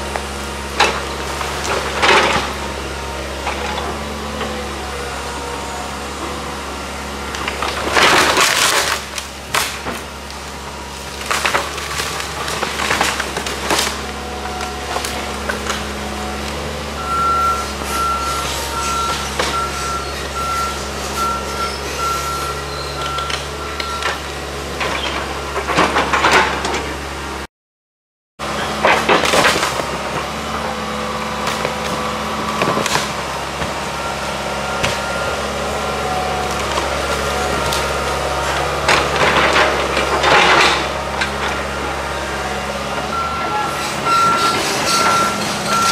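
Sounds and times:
excavator engine running: 0:00.0 - 0:27.5, 0:28.4 - 0:45.9
wood splintering and crashing: 0:00.2 - 0:04.7, 0:07.2 - 0:27.0, 0:28.5 - 0:45.9
warning alarm beeping: 0:43.1 - 0:45.9.

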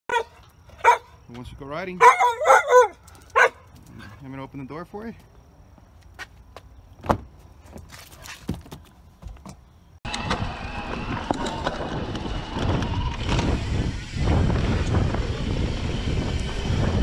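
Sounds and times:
tyre noise on dirt: 0:05.2 - 0:17.0
wind on microphone: 0:10.1 - 0:17.0.

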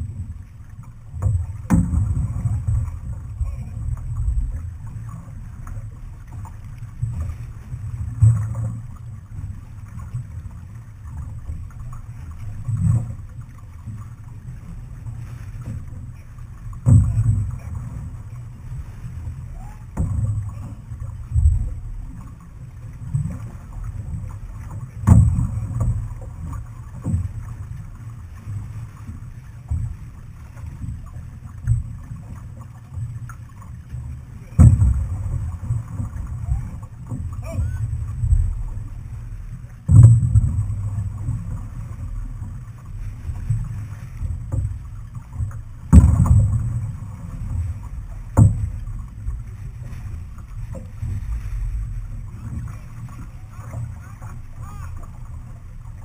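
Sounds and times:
water noise along hull: 0:00.0 - 0:56.0
wind rumble on microphone: 0:00.0 - 0:56.0
dull thump: 0:01.2 - 0:03.6, 0:16.8 - 0:17.8, 0:25.0 - 0:27.3, 0:34.5 - 0:38.6, 0:39.9 - 0:41.6, 0:43.5 - 0:51.4.

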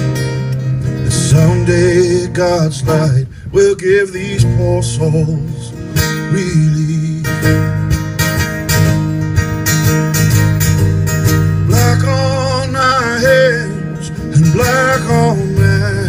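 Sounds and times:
acoustic guitar strumming: 0:00.0 - 0:16.0
man singing: 0:01.0 - 0:07.9, 0:11.6 - 0:16.0.

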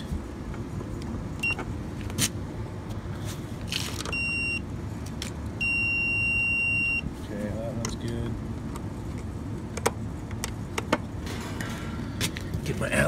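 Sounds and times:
multimeter beeping: 0:01.4 - 0:01.6, 0:04.1 - 0:04.6, 0:05.6 - 0:07.1.

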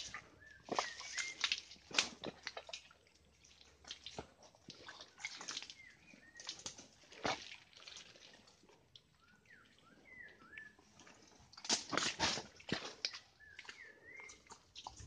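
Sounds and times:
footsteps squelching through mud: 0:00.0 - 0:08.7, 0:10.1 - 0:15.0
bird whistled calls: 0:00.4 - 0:01.4.

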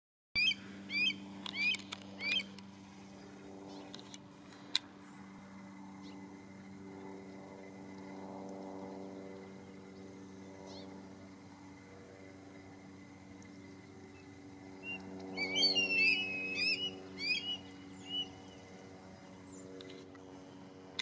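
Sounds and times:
hawk calls: 0:00.4 - 0:02.6, 0:14.8 - 0:18.6
low hum: 0:00.4 - 0:21.0.

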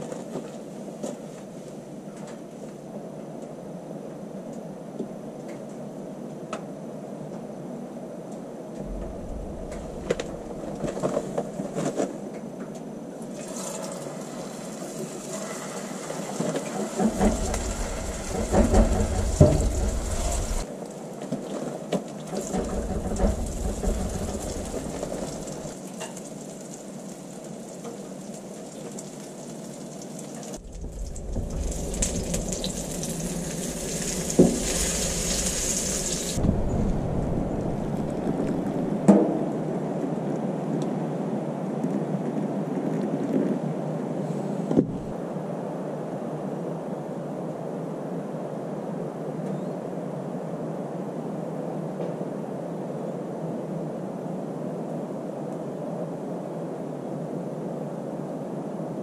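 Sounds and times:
low rumble: 0:08.8 - 0:11.7, 0:17.0 - 0:20.7, 0:22.4 - 0:25.8, 0:30.6 - 0:39.1, 0:44.8 - 0:45.2
patties sizzling in a pan: 0:32.5 - 0:36.4.

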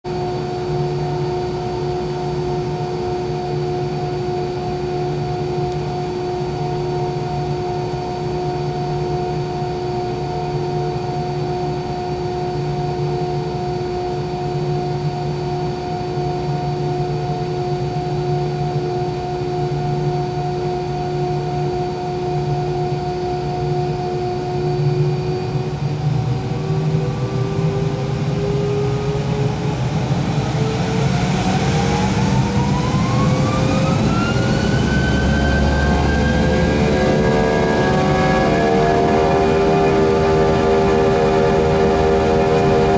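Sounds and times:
jet engine whine: 0:00.0 - 0:42.9
low pulsing hum: 0:00.1 - 0:42.9.

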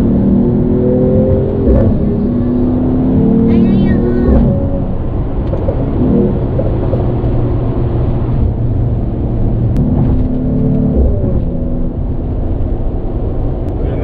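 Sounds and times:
car cabin engine drone: 0:00.0 - 0:14.0
clearer engine note: 0:09.8 - 0:12.3.

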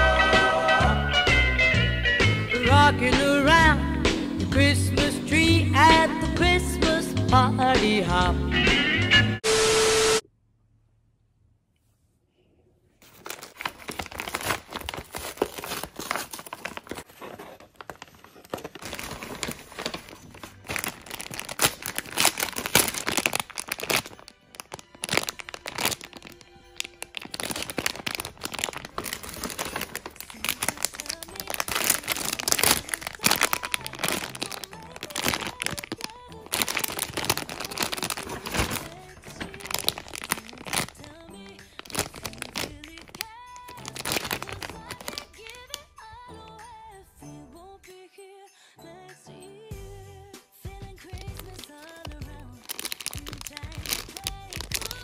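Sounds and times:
background music: 0:00.0 - 0:10.2, 0:19.3 - 0:55.0
plastic bags crinkling: 0:13.0 - 0:46.6, 0:51.0 - 0:55.0.

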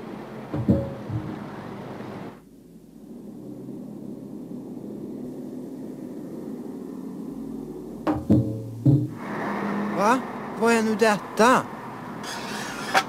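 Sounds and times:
loud knocks: 0:00.5 - 0:01.4
low rumble: 0:00.7 - 0:12.2.

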